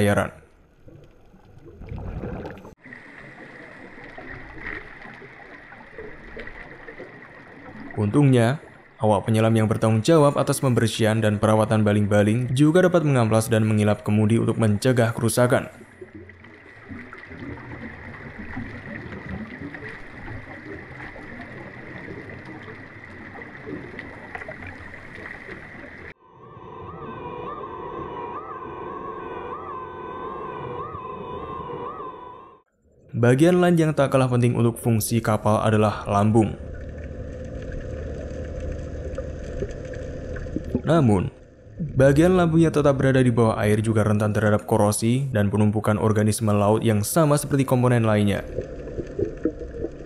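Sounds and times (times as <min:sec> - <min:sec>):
underwater bubbling rumble: 0:00.4 - 0:10.0, 0:15.5 - 0:26.2, 0:34.9 - 0:44.2, 0:47.3 - 0:50.0
high whine: 0:26.1 - 0:32.6.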